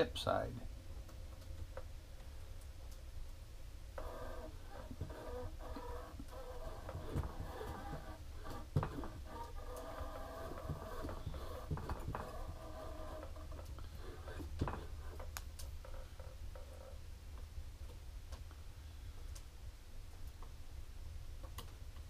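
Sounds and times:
carriage sliding on metal rail: 4.0s - 15.3s
rod-wrapping machine humming: 4.0s - 16.9s.

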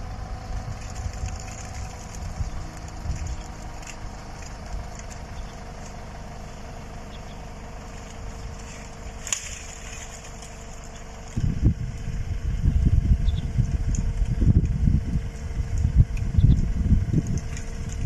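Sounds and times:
rough low rumble: 0.0s - 18.0s
tractor engine running: 0.0s - 18.0s.

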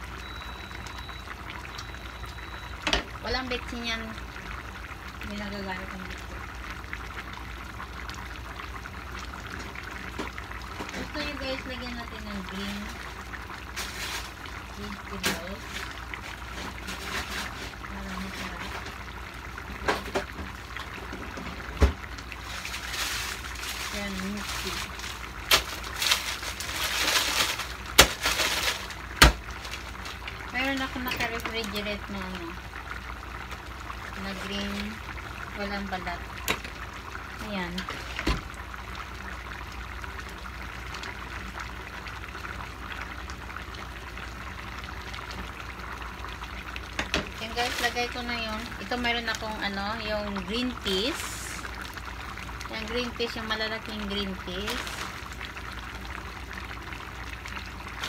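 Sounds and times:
stew bubbling and popping: 0.0s - 58.0s
thump: 38.2s - 38.5s.

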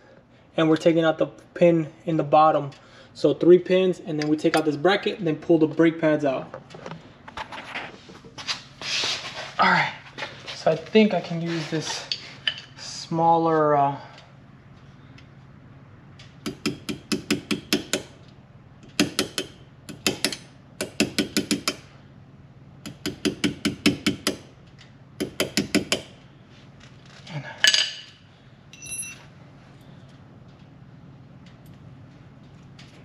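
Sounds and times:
metal scrape: 10.5s - 12.5s
hammer tapping metal punch: 16.4s - 18.1s, 18.9s - 21.9s, 22.8s - 24.4s, 25.2s - 26.1s
ringing metallic clink: 28.7s - 29.3s.

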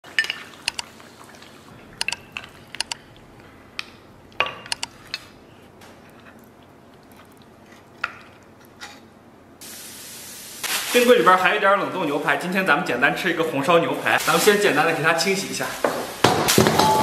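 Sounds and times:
sharp clicks: 0.6s - 0.9s, 2.0s - 3.0s, 4.6s - 5.0s
steady hiss: 9.6s - 13.0s, 13.8s - 17.0s.

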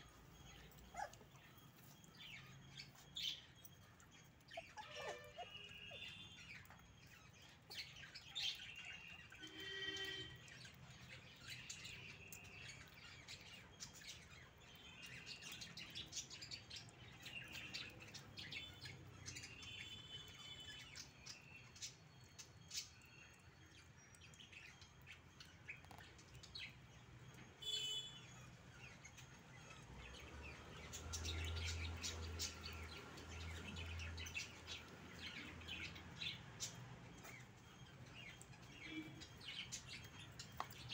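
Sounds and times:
puppies chirping and squeaking: 0.0s - 14.8s, 24.3s - 27.6s, 28.4s - 40.9s.

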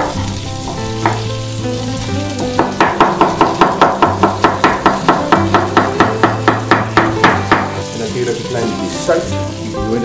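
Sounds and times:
knife knocking on wooden board: 0.7s - 1.3s, 2.5s - 7.8s.

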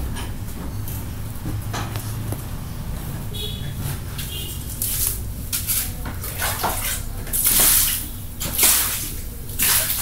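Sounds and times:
liquid splashing and sloshing: 4.7s - 10.0s.

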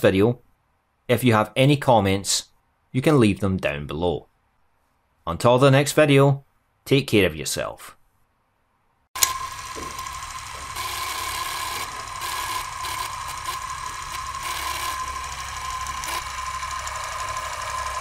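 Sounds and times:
film projector whir and rattle: 9.2s - 18.0s.

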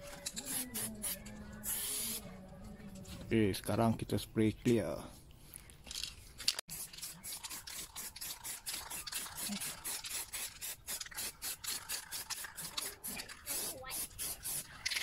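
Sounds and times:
spray can hissing in short bursts: 0.5s - 2.2s, 6.7s - 14.7s.

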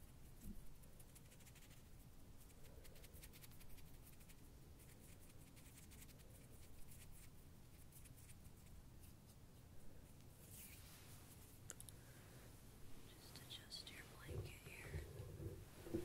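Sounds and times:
scratchy brushing at microphone: 13.0s - 16.0s.

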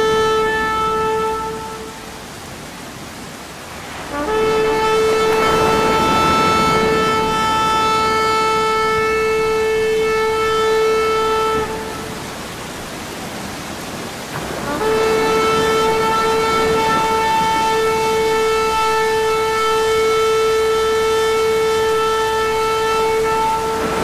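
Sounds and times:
droning note: 3.6s - 12.4s, 14.6s - 24.0s.

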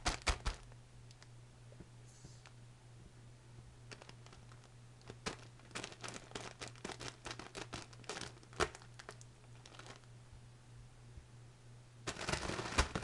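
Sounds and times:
plastic wrapper crinkling: 3.9s - 10.1s, 12.1s - 13.0s.

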